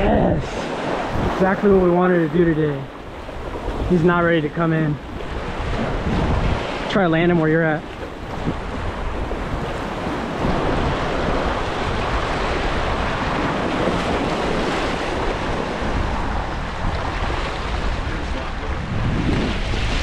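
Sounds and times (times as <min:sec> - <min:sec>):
surf splashing against rocks: 0:00.0 - 0:20.0
wind buffeting microphone: 0:00.0 - 0:20.0.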